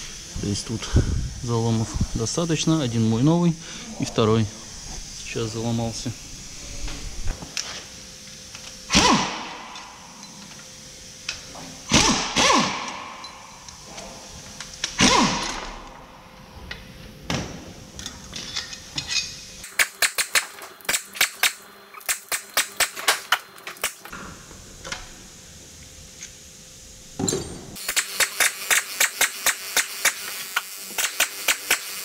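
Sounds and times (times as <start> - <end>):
power wrench bursts: 8.9 - 10.0, 11.8 - 13.8, 14.8 - 16.0, 27.8 - 32.0.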